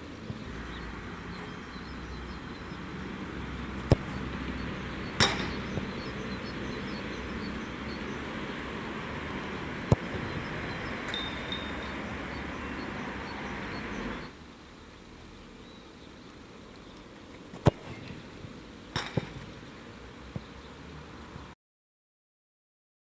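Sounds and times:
steady outdoor hiss: 0.0 - 21.6
football kicked thuds: 3.8 - 4.4, 5.0 - 6.2, 9.8 - 11.7, 17.6 - 18.1, 19.0 - 19.5
ringing knock: 5.2 - 5.6, 11.1 - 11.9.

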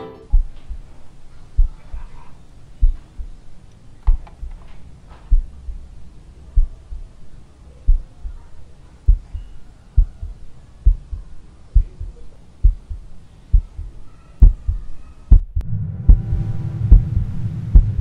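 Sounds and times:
deep heartbeat-like thumps: 0.3 - 1.0, 1.6 - 2.0, 2.8 - 3.5, 4.1 - 4.7, 5.3 - 5.9, 6.5 - 7.2, 7.8 - 8.4, 9.1 - 18.0.

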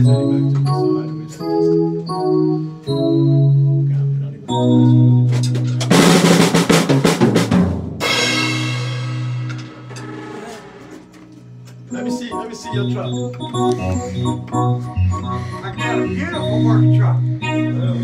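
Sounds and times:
held notes tune: 0.0 - 6.0, 11.6 - 18.0
fast drum roll: 5.9 - 9.8
cymbal crash: 8.0 - 9.9.

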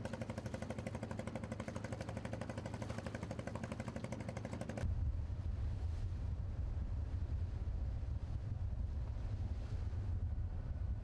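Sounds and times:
engine running: 0.0 - 4.9
wind rumble on microphone: 4.8 - 11.0.

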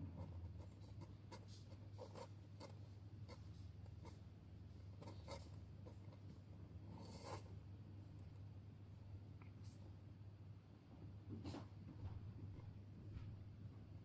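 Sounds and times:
kitten paws scratching cardboard: 0.0 - 7.6
steady low hum: 0.0 - 14.0.

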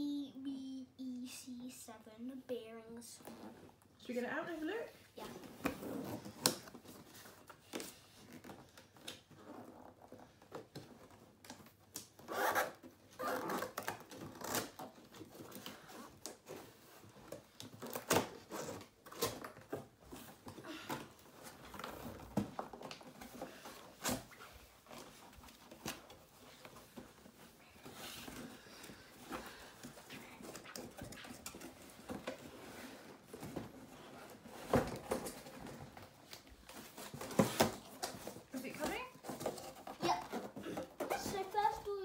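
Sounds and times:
cardboard rustling and scraping: 12.3 - 42.0.

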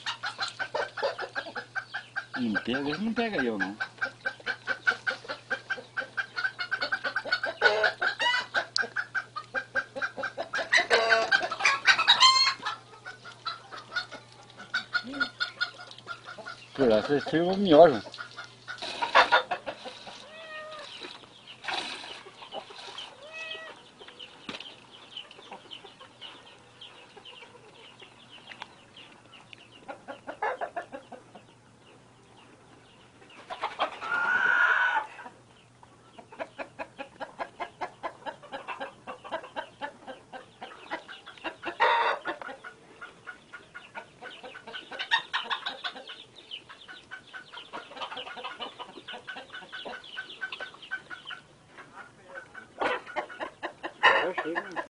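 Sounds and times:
chickens clucking: 0.0 - 54.9.

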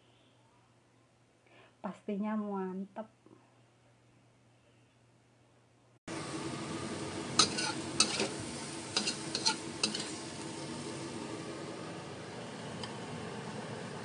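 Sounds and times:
food sizzling in a pan: 6.1 - 14.0
spatula clacking against pan: 7.4 - 8.3, 9.0 - 10.1.

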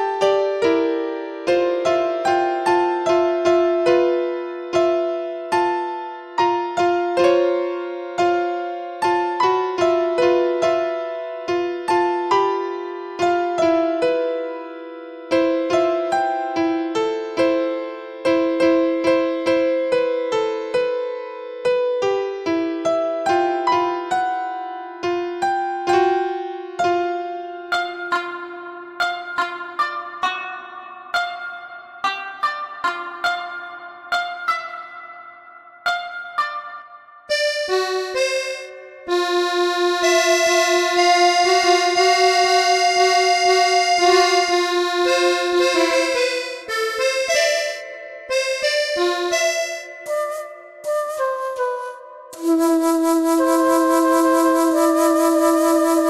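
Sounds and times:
simple keyboard melody: 0.0 - 56.0
background music: 37.3 - 56.0.

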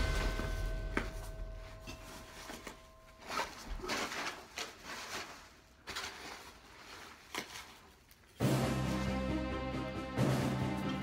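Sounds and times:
handling scuffs and rustles: 0.0 - 8.4.

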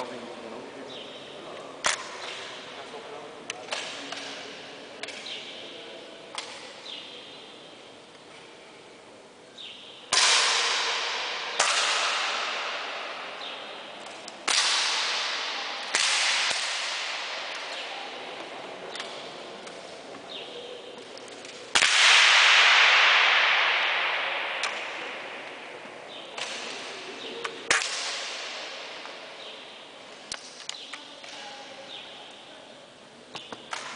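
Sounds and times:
air rifle cracks with echo: 10.1 - 17.9, 21.4 - 27.0.

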